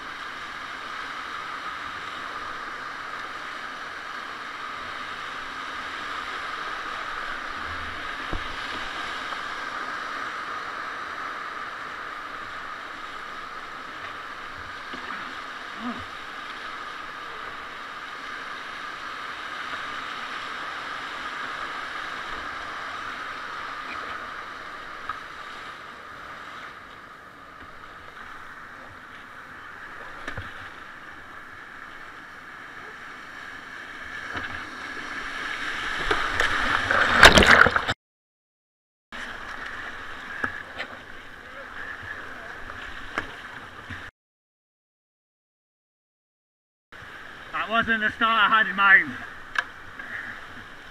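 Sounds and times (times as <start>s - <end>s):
whitewater rushing: 0.0s - 26.5s, 27.7s - 38.0s.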